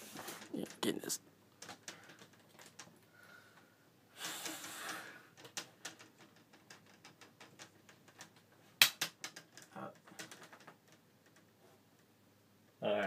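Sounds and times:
breathy exhale: 0:03.1 - 0:05.3
plastic clicks and snaps: 0:05.4 - 0:11.4.

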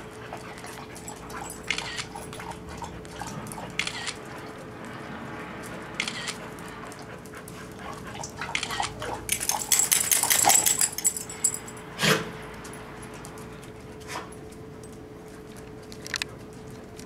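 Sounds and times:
metallic jingles: 0:00.0 - 0:04.6, 0:07.8 - 0:15.4
dog claws clicking: 0:00.0 - 0:05.0, 0:05.6 - 0:11.8.

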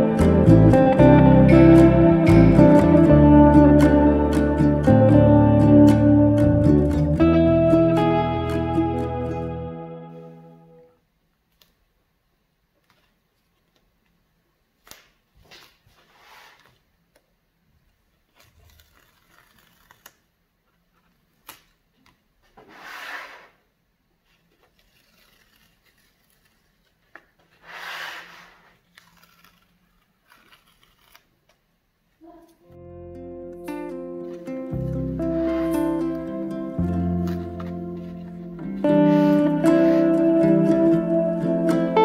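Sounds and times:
tape tearing off paper: 0:14.8 - 0:16.8, 0:18.2 - 0:20.4, 0:24.3 - 0:31.6
paper handling clicks: 0:18.3 - 0:20.3, 0:28.7 - 0:31.6.

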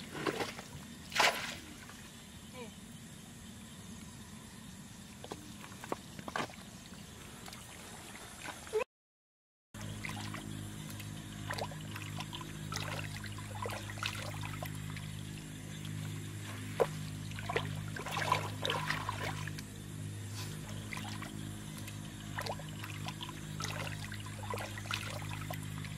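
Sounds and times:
sloshing in muddy water: 0:00.0 - 0:02.2, 0:09.8 - 0:25.9
steady low hum: 0:09.8 - 0:25.9.

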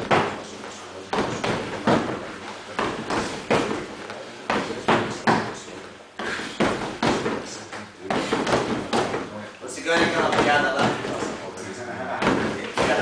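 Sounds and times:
punches thudding on heavy bag: 0:08.1 - 0:09.3.

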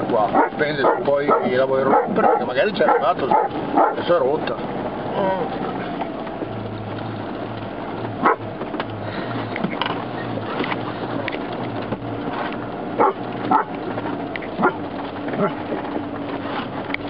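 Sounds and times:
vehicle engine droning: 0:00.0 - 0:17.0
dog barking: 0:00.3 - 0:04.1, 0:08.2 - 0:08.4, 0:13.0 - 0:13.7, 0:14.6 - 0:14.8.

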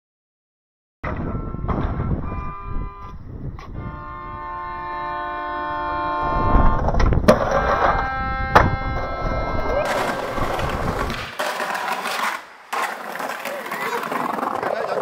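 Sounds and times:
melodica playing chords: 0:03.8 - 0:06.7
skateboard rolling: 0:06.7 - 0:08.1, 0:08.9 - 0:15.0
skateboard clacking on concrete: 0:09.8 - 0:15.0.

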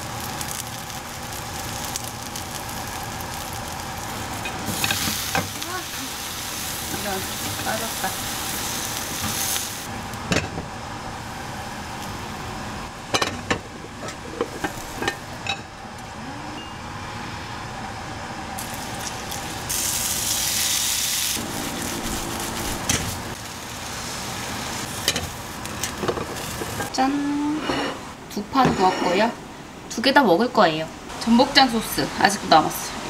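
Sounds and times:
pancake sizzling in oil: 0:00.0 - 0:10.2, 0:18.6 - 0:26.9.

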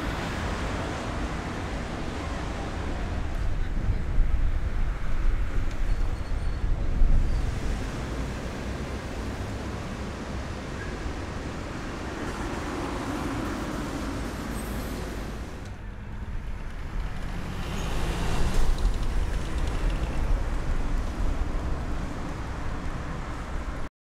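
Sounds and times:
road traffic rumble: 0:00.0 - 0:23.9.

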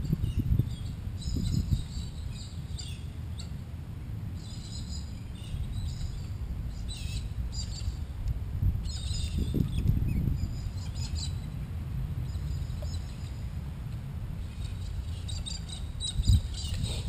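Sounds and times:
wind rumble on microphone: 0:00.0 - 0:17.0
birds chirping: 0:08.8 - 0:13.6, 0:14.4 - 0:17.0.

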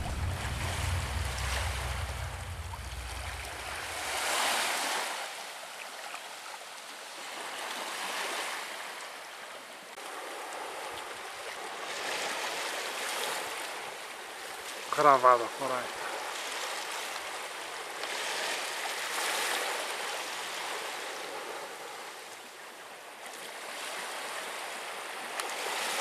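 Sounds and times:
wind on microphone: 0:00.0 - 0:05.0
waves breaking on shore: 0:00.0 - 0:26.0.

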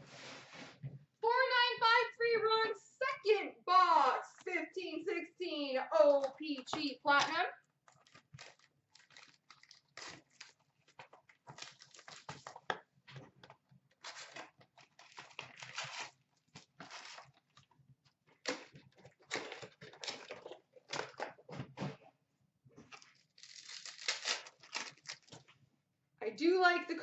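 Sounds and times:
foil wrappers crinkling and tearing: 0:07.9 - 0:12.7, 0:14.0 - 0:17.7, 0:18.4 - 0:21.2, 0:22.9 - 0:25.4.

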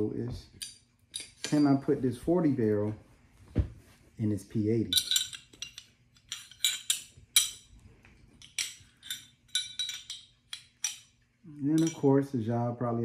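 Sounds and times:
metal pistol parts clicking: 0:04.9 - 0:07.7.

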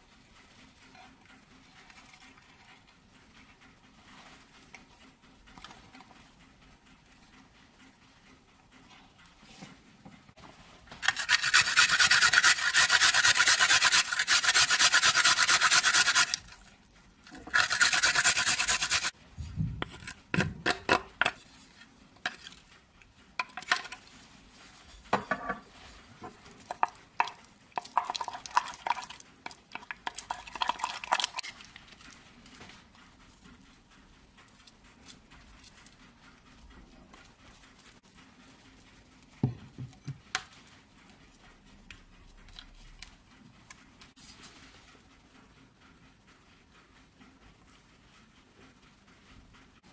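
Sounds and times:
grating on a metal grater: 0:00.2 - 0:07.6, 0:11.0 - 0:19.2, 0:19.8 - 0:22.8, 0:25.6 - 0:44.3
wooden spoon scraping a bowl: 0:11.0 - 0:16.6, 0:17.3 - 0:19.2, 0:19.8 - 0:22.7.

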